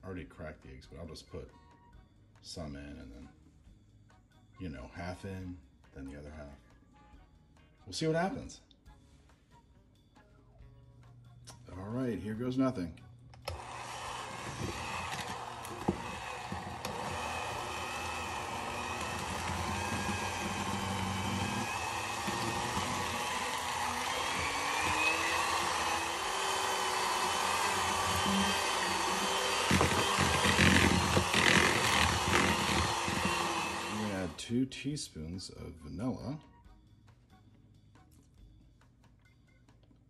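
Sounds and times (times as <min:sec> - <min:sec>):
electric hand mixer running: 0:13.4 - 0:34.4.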